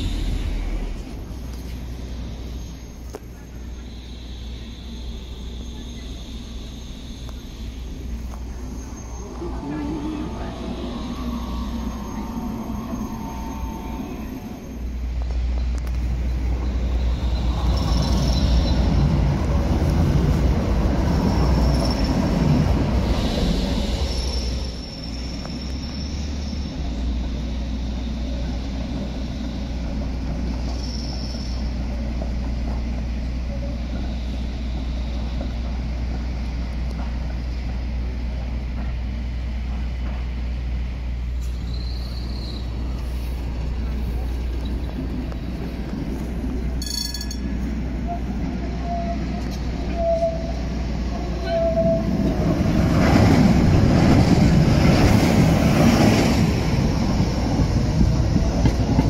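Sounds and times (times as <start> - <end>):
tram rumbling over rails: 0.0 - 59.0
high wheel squeals: 1.3 - 15.2, 23.0 - 27.1, 41.5 - 43.2, 48.0 - 52.2.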